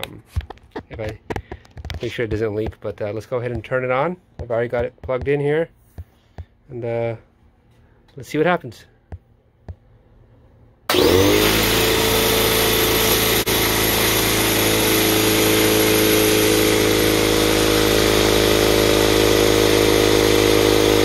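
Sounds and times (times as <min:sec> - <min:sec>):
air compressor motor running: 0:10.9 - 0:21.0.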